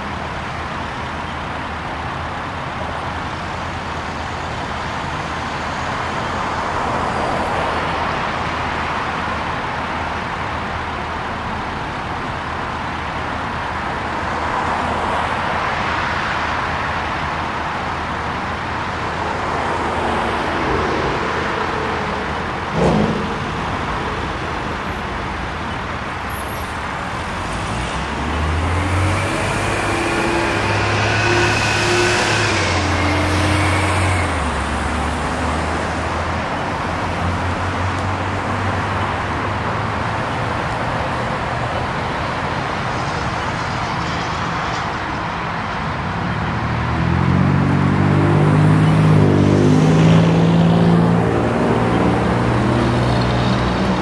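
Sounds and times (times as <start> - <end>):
cars passing: 0.0 - 54.0
engine drone with whine: 16.5 - 54.0.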